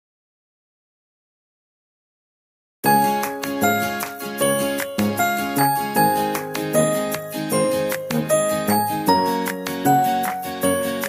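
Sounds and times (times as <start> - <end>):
tinkling bell-like melody: 2.9 - 11.0.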